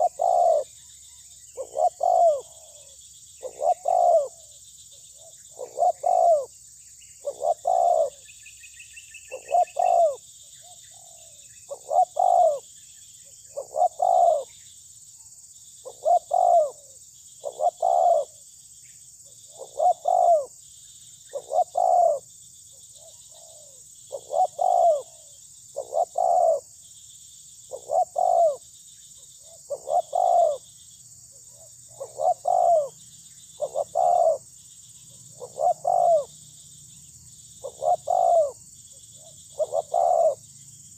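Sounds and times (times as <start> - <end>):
dove cooing: 0.0 - 0.8, 1.5 - 6.5, 7.2 - 8.2, 9.2 - 12.6, 13.5 - 14.5, 15.8 - 18.4, 19.5 - 20.5, 21.3 - 22.3, 23.0 - 26.7, 27.7 - 28.6, 29.4 - 30.6, 31.3 - 33.0, 33.6 - 34.5, 35.1 - 36.3, 37.6 - 38.6, 39.2 - 40.5.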